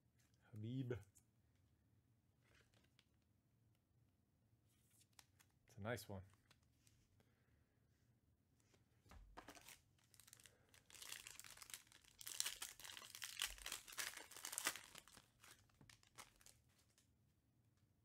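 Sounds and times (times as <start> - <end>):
foil wrapper tearing and crinkling: 9.5 - 16.6.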